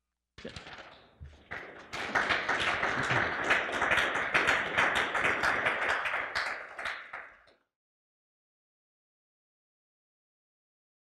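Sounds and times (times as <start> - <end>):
audience applauding: 1.4 - 7.6.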